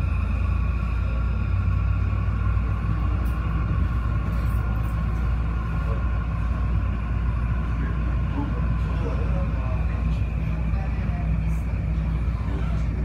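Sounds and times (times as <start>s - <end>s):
high-pitched train whine: 0.0s - 13.0s
train low rumble: 0.0s - 13.0s.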